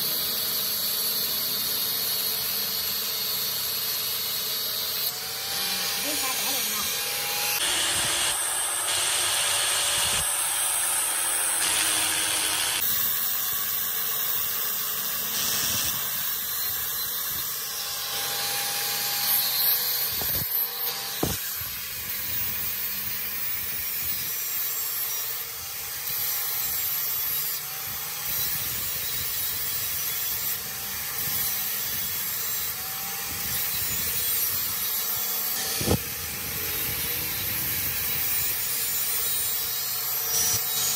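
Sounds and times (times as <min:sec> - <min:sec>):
angle grinder cutting steel: 0:00.0 - 0:40.9.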